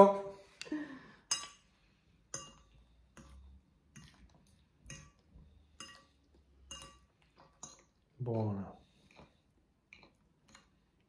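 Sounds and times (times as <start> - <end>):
forks clinking against plates: 5.8 - 7.8.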